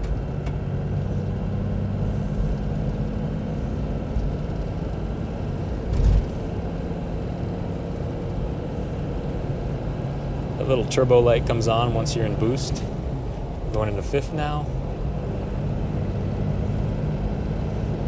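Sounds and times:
diesel engine droning: 0.0s - 18.0s
tyre and road noise: 0.0s - 18.0s
brief thump: 5.9s - 6.4s.

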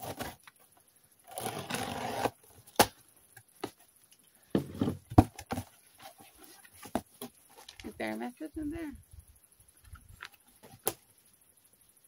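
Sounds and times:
packing tape ripping off cardboard: 0.0s - 0.6s, 1.2s - 3.0s.

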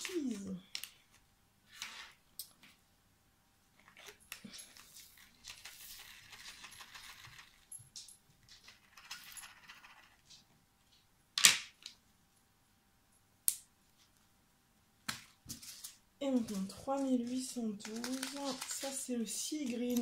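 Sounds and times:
plastic bags crinkling: 15.5s - 20.0s.

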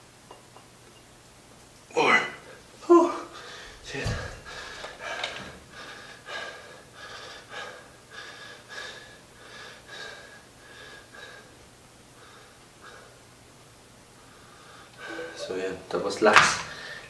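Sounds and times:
man breathing hard: 3.3s - 11.6s.

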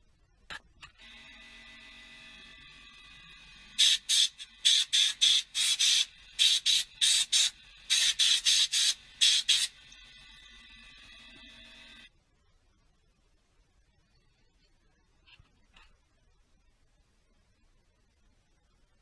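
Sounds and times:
air blow gun hissing bursts: 3.8s - 9.8s.

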